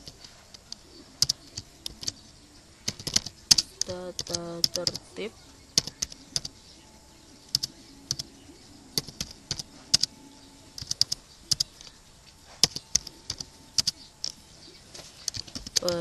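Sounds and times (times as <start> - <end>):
keyboard typing: 0.0 - 16.0.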